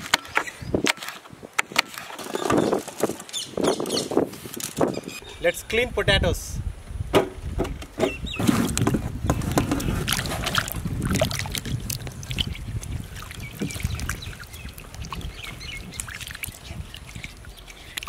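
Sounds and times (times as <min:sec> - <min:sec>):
water sloshing in a pot: 0:09.3 - 0:18.0.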